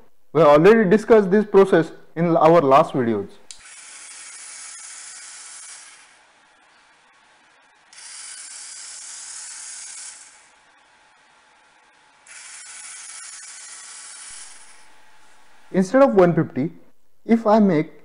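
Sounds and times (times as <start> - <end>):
small motors whirring: 3.5 - 15.4.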